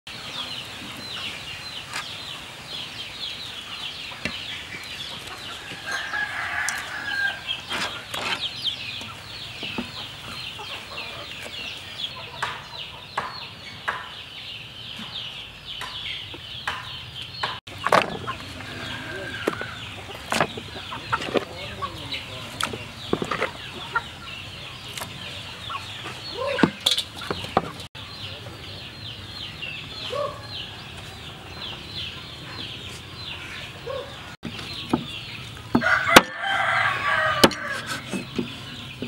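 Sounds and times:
chicks cheeping: 0.1s - 39.0s
hen clucking: 3.7s - 14.2s, 15.8s - 28.9s.

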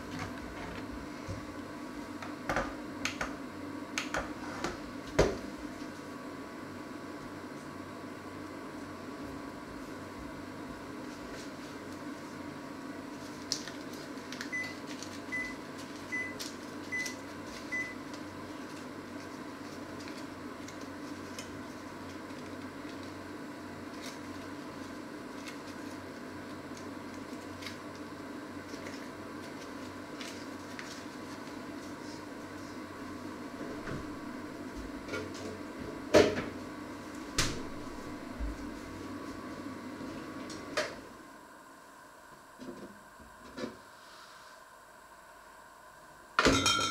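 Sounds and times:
steady low hum: 0.0s - 46.9s
kitchen knocks and clunks: 36.2s - 36.6s, 46.4s - 46.9s.

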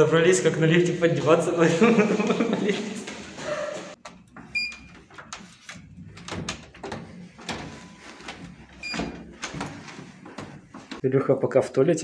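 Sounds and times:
electronic lock beep: 4.5s - 5.0s, 8.8s - 9.2s.

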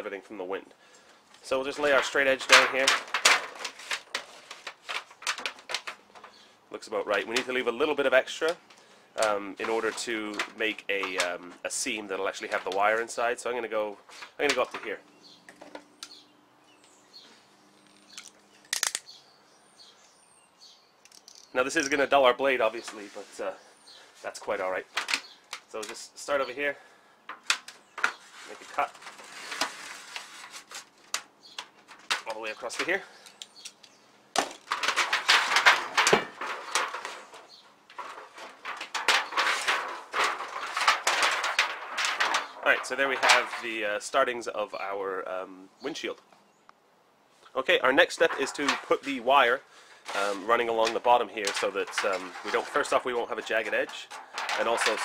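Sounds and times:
aluminium foil crinkling and tearing: 1.6s - 6.4s, 27.5s - 33.0s, 34.6s - 43.7s, 50.1s - 55.0s.

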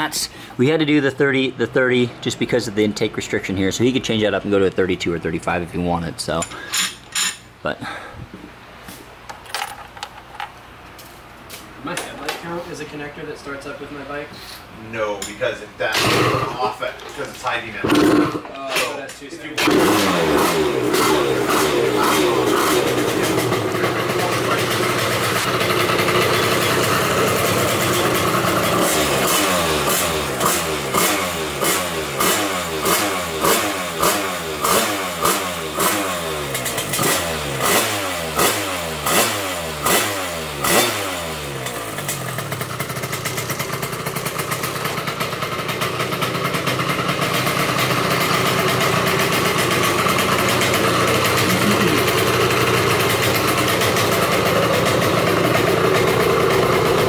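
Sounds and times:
scooter engine revving and idling: 16.0s - 16.6s, 17.9s - 18.4s, 19.6s - 57.0s.

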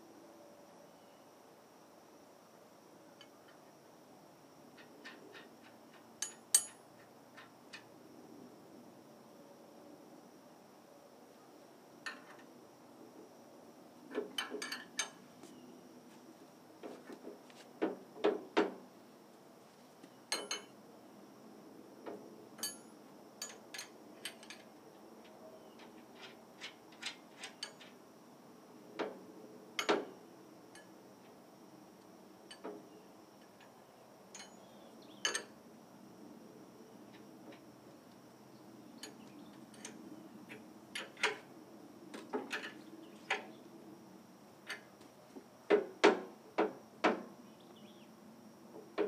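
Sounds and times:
wrenches clinking on steel frame: 4.8s - 7.9s, 12.0s - 12.4s, 14.1s - 15.2s, 20.3s - 20.8s, 22.6s - 28.0s, 33.4s - 35.6s, 39.0s - 41.5s, 42.4s - 43.5s.

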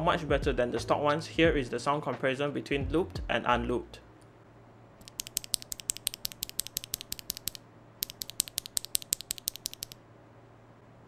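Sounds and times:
keyboard switch clacking: 5.0s - 10.0s.

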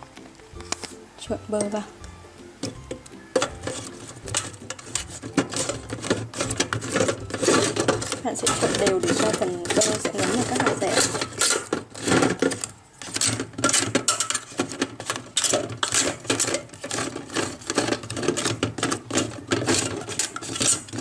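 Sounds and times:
chestnuts clattering in basket: 2.6s - 21.0s.

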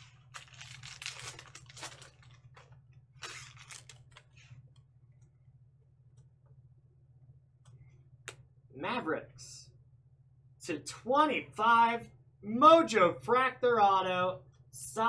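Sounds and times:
foil card pack crinkling: 0.0s - 4.4s.

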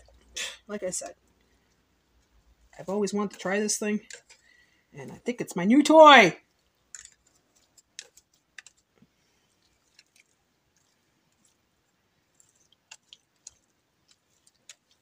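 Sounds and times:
plastic claws shredding meat: 2.2s - 5.3s, 6.4s - 15.0s.

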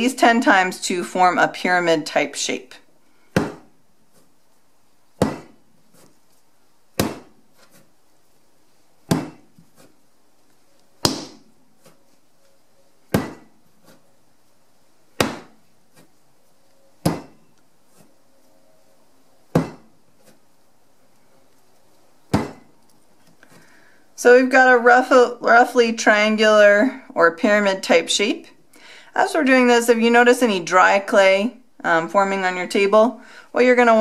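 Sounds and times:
clay slapping onto table: 7.0s - 7.4s, 11.0s - 12.0s, 15.2s - 15.6s.

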